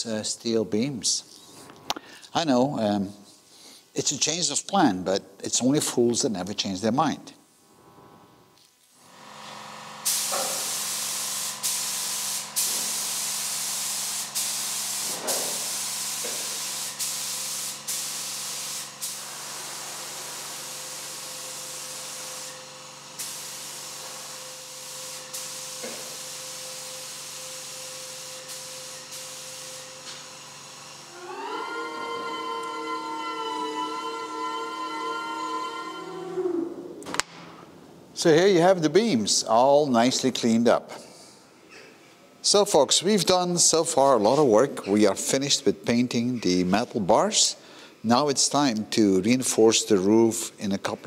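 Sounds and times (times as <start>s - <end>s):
paint spray gun hissing: 9.0s - 31.3s.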